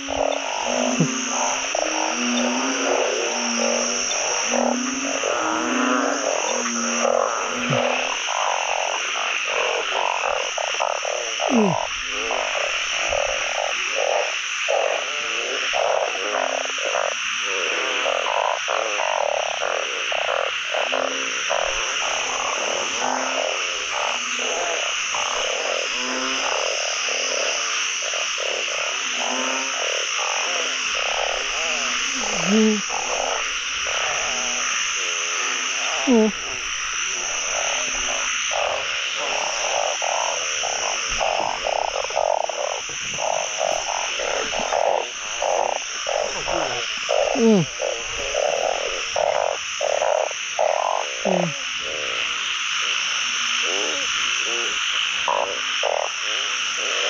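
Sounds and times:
frog calls sliding down in pitch: 0:00.0 - 0:08.2, 0:30.5 - 0:34.7, 0:35.4 - 0:36.6, 0:51.2 - 0:51.6
chorus of frogs croaking: 0:00.0 - 0:57.0.

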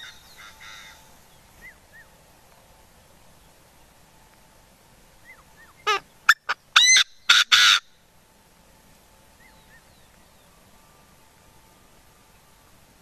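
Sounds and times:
francolin calling: 0:00.0 - 0:02.2, 0:05.2 - 0:08.1, 0:09.4 - 0:12.8.

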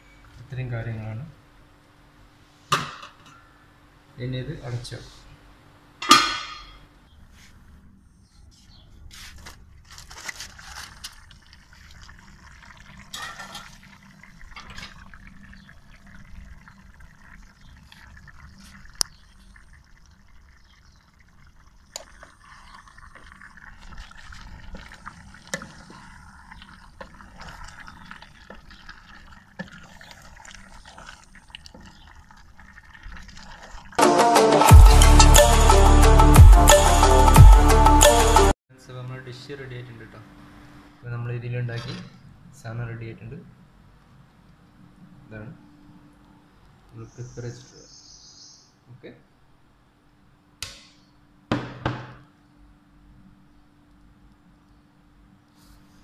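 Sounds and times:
thick curry squelching when stirred: 0:22.0 - 0:34.0.

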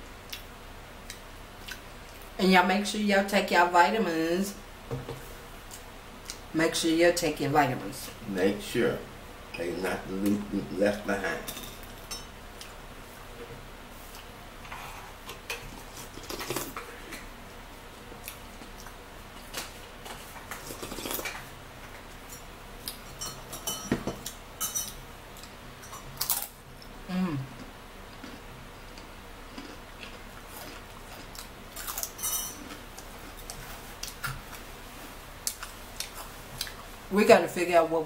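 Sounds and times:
dishes and cutlery clattering: 0:23.1 - 0:25.0.

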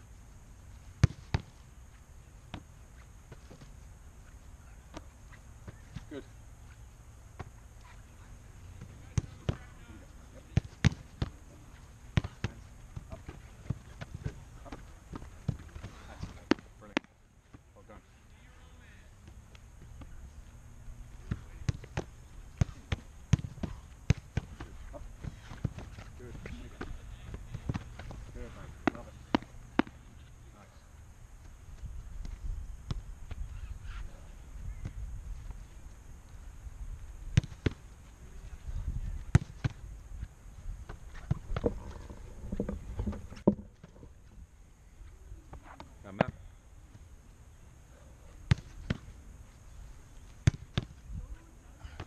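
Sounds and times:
football thudding into gloves: 0:01.0 - 0:01.5, 0:21.2 - 0:30.0, 0:48.5 - 0:49.1, 0:50.4 - 0:50.9
footballs thumping: 0:01.0 - 0:01.6, 0:04.8 - 0:06.2, 0:08.7 - 0:09.8, 0:10.4 - 0:17.7, 0:21.1 - 0:30.4, 0:31.4 - 0:35.9, 0:37.0 - 0:37.9, 0:38.5 - 0:39.9, 0:40.8 - 0:44.2, 0:48.4 - 0:49.2, 0:50.4 - 0:52.0
wind rumble on microphone: 0:38.3 - 0:44.1.

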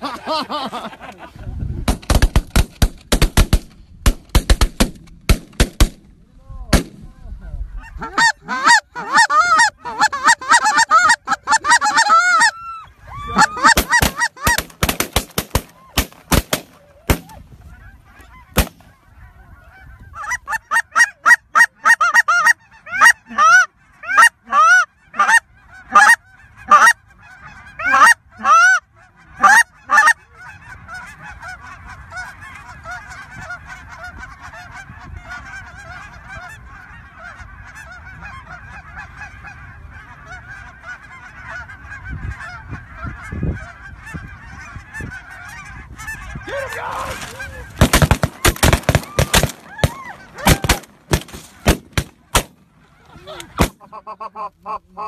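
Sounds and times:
shotgun shots: 0:01.9 - 0:06.0, 0:06.7 - 0:07.0, 0:13.8 - 0:17.3, 0:18.6 - 0:18.8, 0:47.8 - 0:52.6
flock of geese calling: 0:07.2 - 0:55.0
goose calls: 0:07.5 - 0:14.7, 0:15.4 - 0:55.0.

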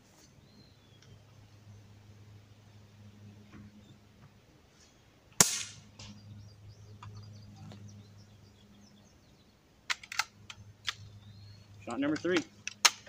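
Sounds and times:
bb gun shot: 0:05.4 - 0:05.9.

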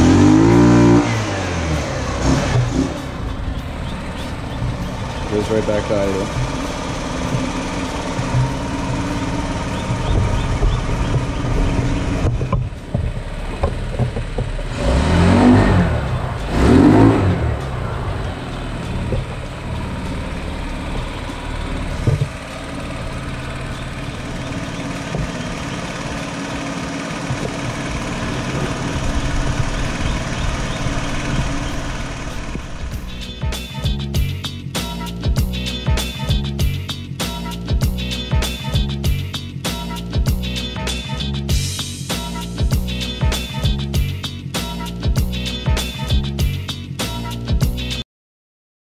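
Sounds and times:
scooter engine idling: 0:00.0 - 0:14.8, 0:15.9 - 0:46.8
engine revving: 0:00.0 - 0:48.0.

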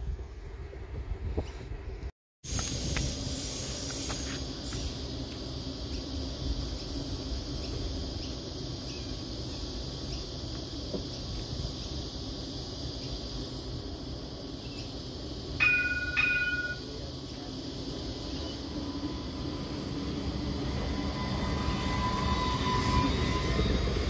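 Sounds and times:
tram running noise: 0:01.9 - 0:24.0
rising whine: 0:17.8 - 0:24.0.

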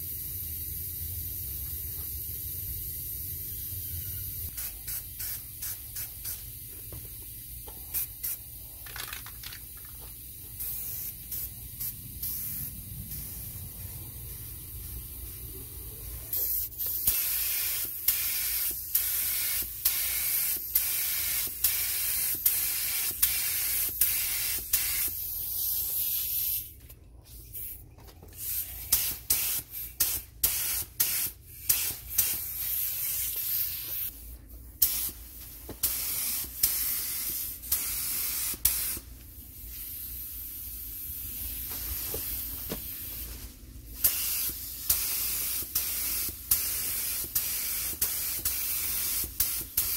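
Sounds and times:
spray gun hissing: 0:00.0 - 0:06.6, 0:10.2 - 0:15.5, 0:16.3 - 0:26.7, 0:28.4 - 0:39.0, 0:44.0 - 0:49.9.

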